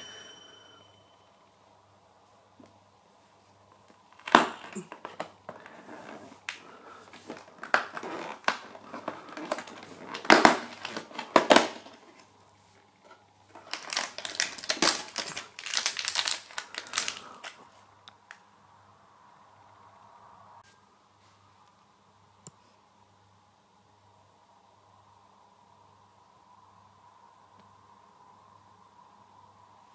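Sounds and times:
plastic wrapper crinkling: 4.1 - 12.3, 13.5 - 18.4
cardboard door tearing: 7.6 - 12.0.

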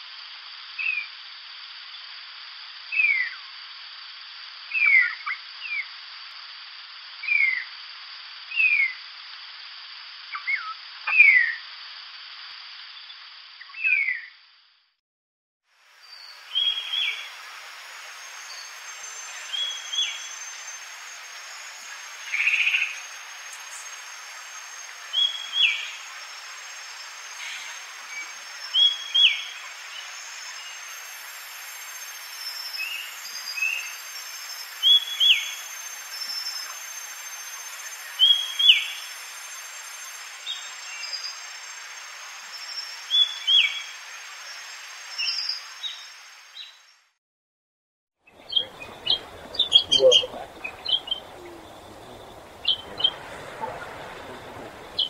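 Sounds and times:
background hiss: 0.0 - 14.9, 15.7 - 46.8, 48.3 - 55.0
bird short high calls: 48.4 - 55.0.

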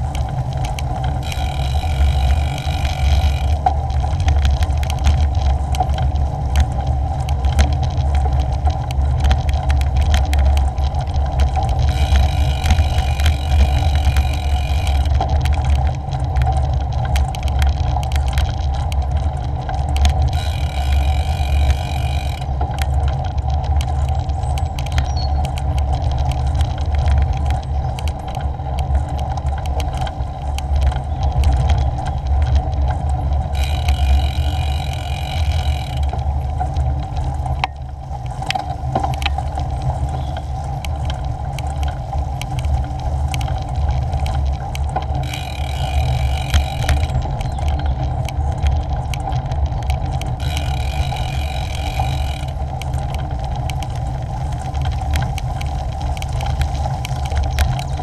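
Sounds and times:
bicycle rattles and clicks: 0.0 - 58.0
bicycle tyres rumbling on gravel: 0.0 - 58.0
wind on microphone: 0.0 - 58.0
high-pitched buzz: 1.2 - 3.6, 20.4 - 22.5.

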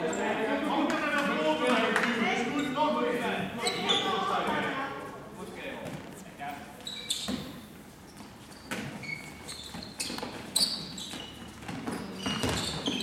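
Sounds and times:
sports shoes squeaking on floor: 2.2 - 3.0, 3.6 - 4.7, 6.8 - 13.0.

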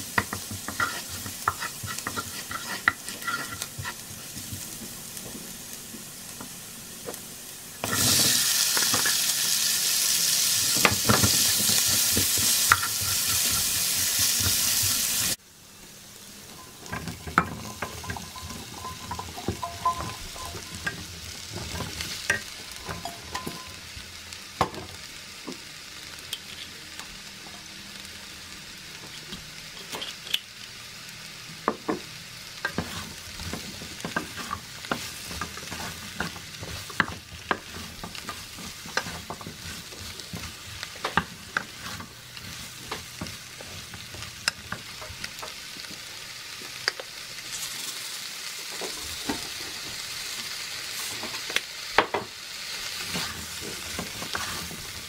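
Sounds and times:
garlic and onions sizzling in a pan: 0.0 - 55.0
wooden spatula scraping a pan: 0.2 - 6.0, 32.6 - 45.4, 52.9 - 55.0.

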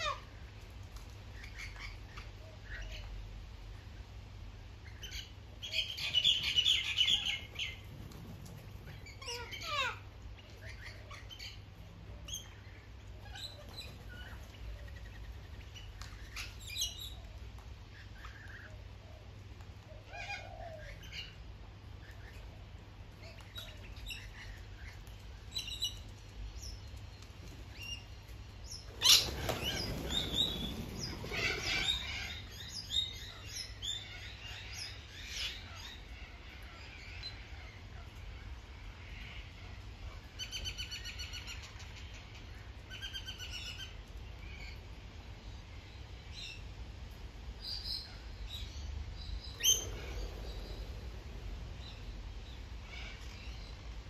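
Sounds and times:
parrots squawking and screeching: 9.0 - 10.0, 20.0 - 21.3, 29.0 - 32.4
birds wings flapping: 28.9 - 32.4.

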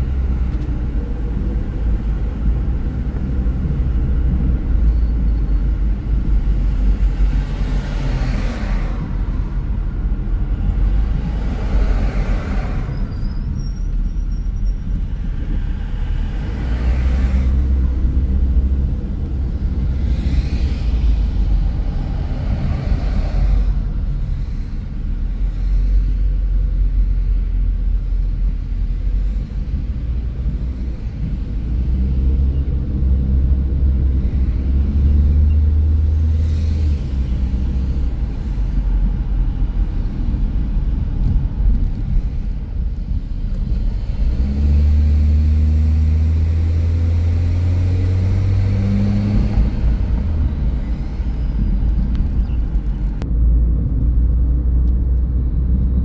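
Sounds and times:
car engine rumble: 0.0 - 56.0
road noise: 0.0 - 56.0.

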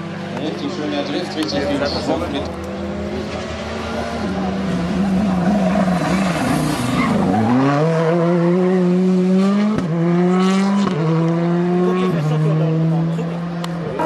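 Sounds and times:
rally car engine revving: 0.0 - 14.0.

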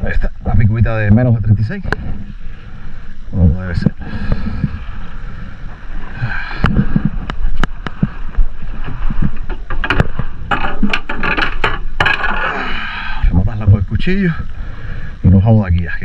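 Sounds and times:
water sloshing against hull: 1.6 - 13.2.

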